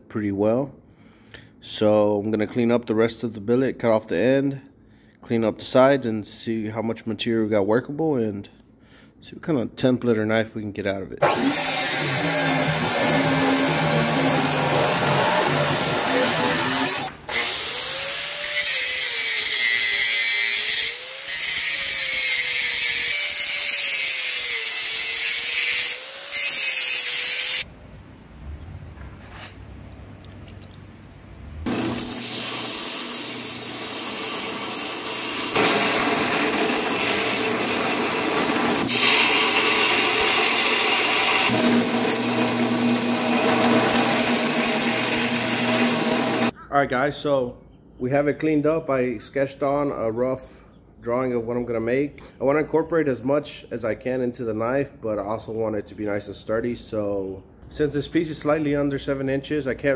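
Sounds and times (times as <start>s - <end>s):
belt grinder grinding metal: 11.2s - 27.6s, 31.7s - 46.5s
chop saw cutting metal: 11.2s - 27.6s, 31.7s - 46.5s.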